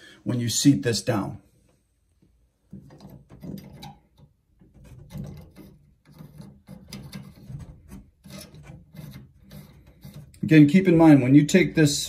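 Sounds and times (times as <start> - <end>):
metal ring scraping and clicking: 2.9 - 10.5.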